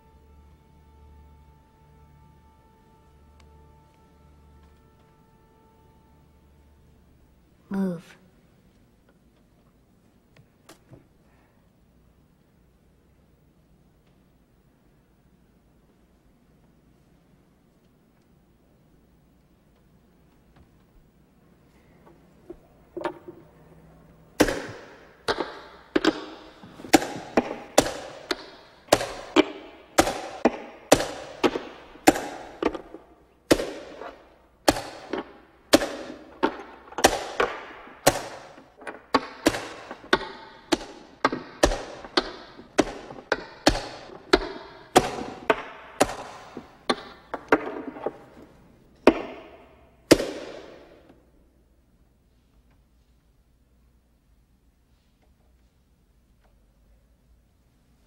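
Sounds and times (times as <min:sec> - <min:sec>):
chess pieces knocking on board: 0:24.4 - 0:50.8.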